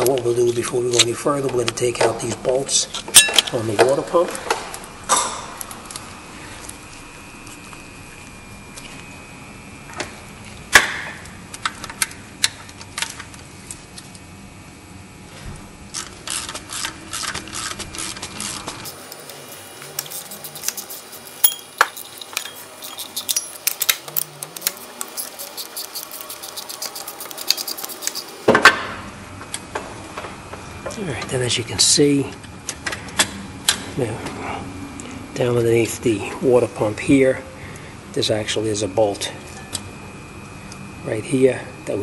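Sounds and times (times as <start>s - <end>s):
ratchet wrench clicking: 19.9s - 28.3s
steel tools clinking: 21.4s - 26.1s.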